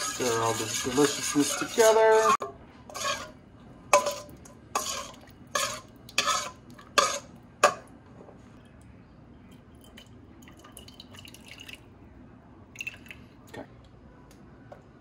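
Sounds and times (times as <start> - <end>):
metal spoon scraping bowl: 0.0 - 3.4, 4.0 - 7.3.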